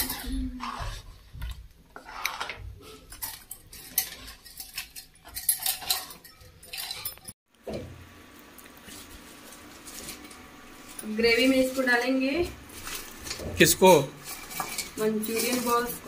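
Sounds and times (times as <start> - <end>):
metal ladle scraping a pot: 2.0 - 7.2, 13.8 - 16.0
metal clatter: 3.1 - 7.4, 12.8 - 16.0.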